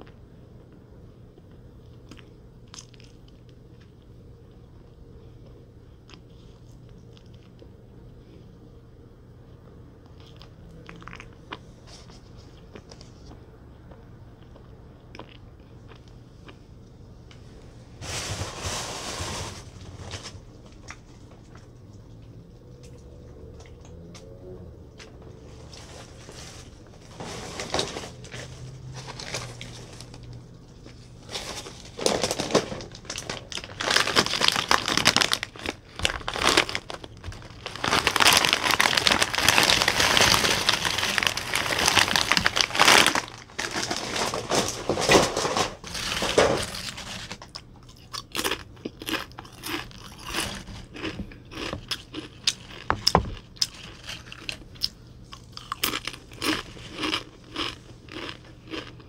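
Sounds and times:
snack bag crinkling: 0:25.7 - 0:59.0
chips crackling: 0:25.8 - 0:59.0.

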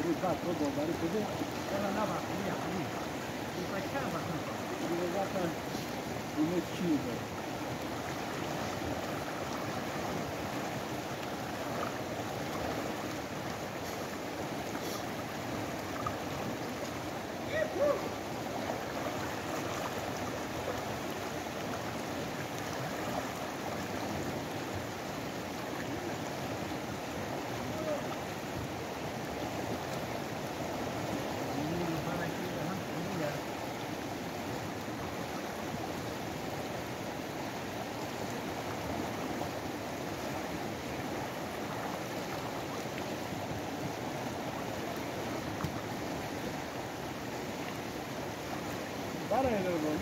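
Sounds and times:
river rushing: 0:00.0 - 0:50.0
person's voice: 0:03.6 - 0:07.2, 0:49.3 - 0:50.0.

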